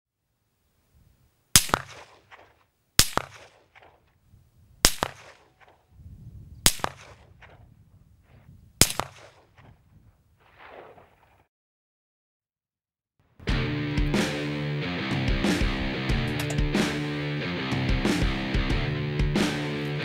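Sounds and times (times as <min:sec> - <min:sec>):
rifle shots with echo: 0:01.5 - 0:04.1, 0:04.8 - 0:05.9, 0:06.6 - 0:11.4.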